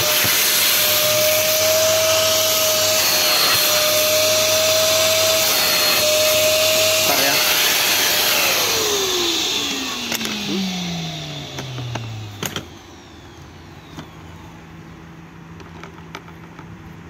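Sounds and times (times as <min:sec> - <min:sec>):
vacuum cleaner motor winding down: 0:00.0 - 0:14.8
plastic clicks and knocks: 0:15.6 - 0:16.8.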